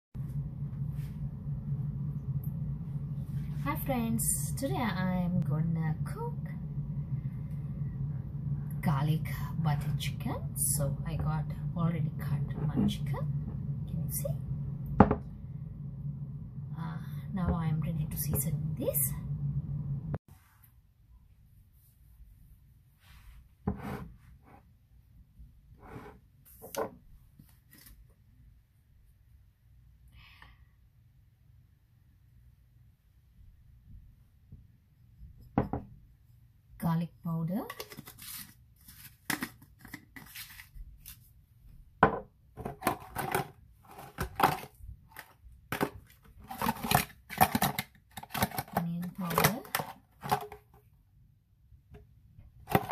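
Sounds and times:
bowl scraping on counter: 23.7 - 24.6, 25.8 - 26.2
spice containers crinkling and clicking: 37.7 - 41.2, 44.0 - 50.7.

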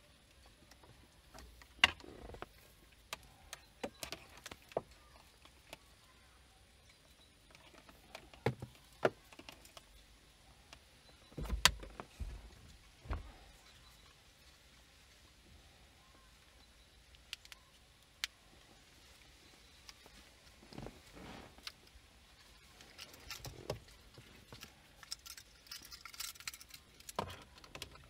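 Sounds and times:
plastic parts clicking and tapping: 0.6 - 5.8, 22.8 - 28.0
low rustle: 18.5 - 25.0.

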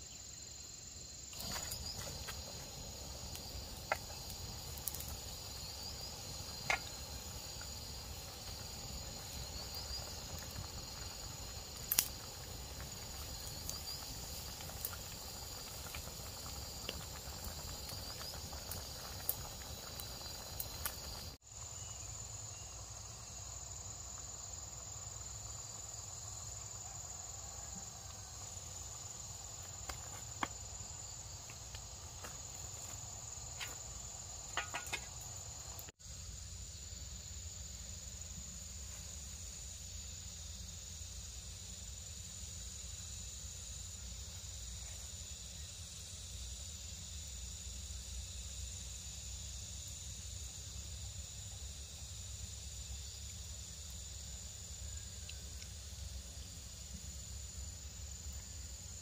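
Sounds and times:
wood fire crackling: 1.3 - 21.4, 27.9 - 36.0
water boiling in a pot: 1.3 - 59.0.

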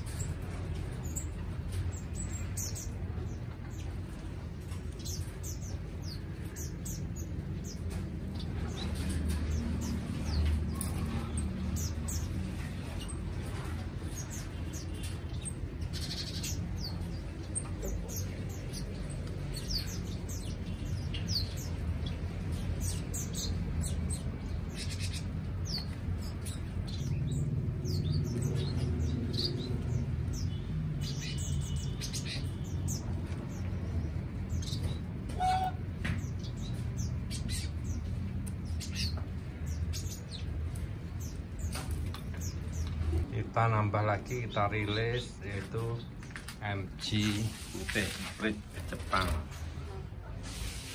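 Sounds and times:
finches chirping: 14.1 - 43.0.

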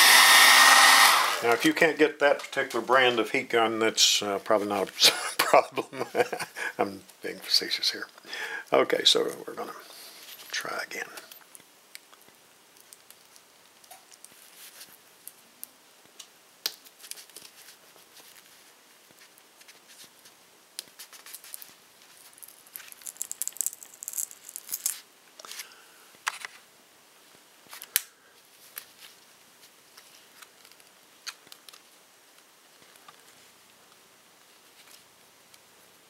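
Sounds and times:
crackling of glass prying loose: 22.3 - 25.0.

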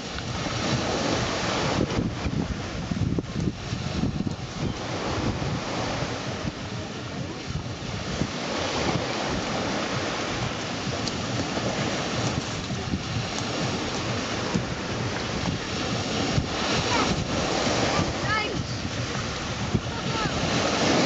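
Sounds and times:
small waves breaking on shore: 0.0 - 21.0
wind buffeting microphone: 0.0 - 21.0.

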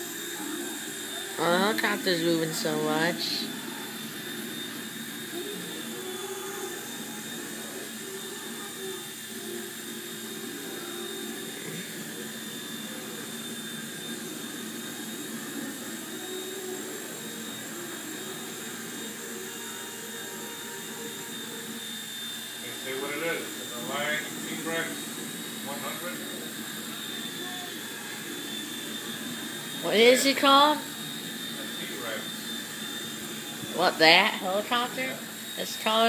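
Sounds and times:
small helicopter rotor whining: 0.0 - 36.0.

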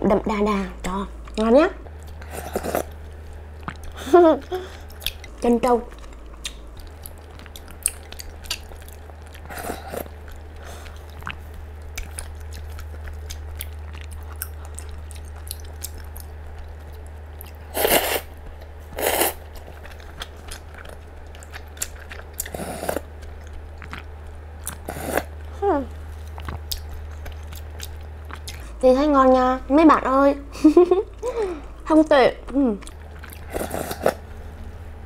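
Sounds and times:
low hum: 0.0 - 35.0
chewing: 1.2 - 28.8, 32.4 - 34.8
noodle slurps: 17.7 - 18.3, 19.0 - 19.4, 33.4 - 34.2.

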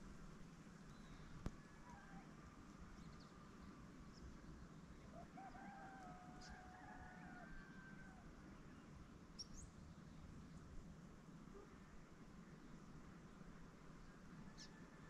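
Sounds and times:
rooster crowing: 5.1 - 8.2
small bird chirping: 9.4 - 9.8.

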